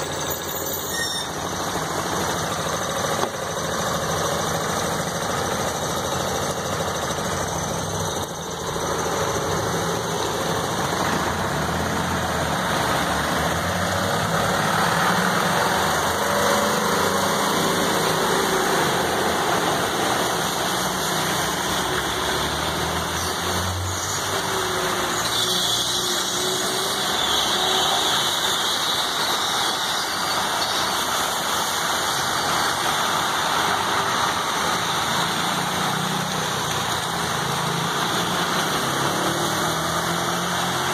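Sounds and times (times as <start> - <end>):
vehicle engines running: 0.0 - 40.9
heavy rain falling: 0.1 - 25.2, 26.4 - 40.9.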